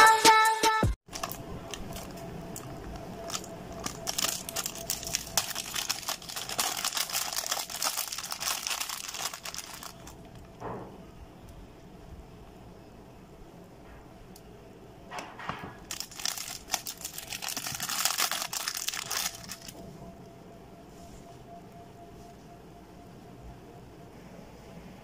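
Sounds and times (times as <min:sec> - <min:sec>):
electronic music: 0:00.0 - 0:01.0
plastic bag crinkling: 0:01.1 - 0:10.6, 0:15.8 - 0:19.8.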